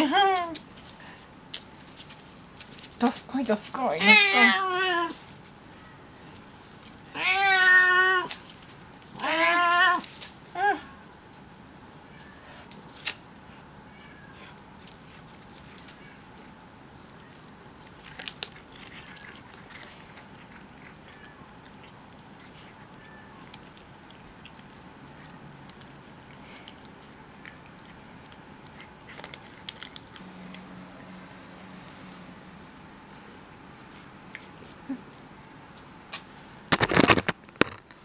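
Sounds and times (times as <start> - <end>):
cat chewing: 17.9 - 30.8.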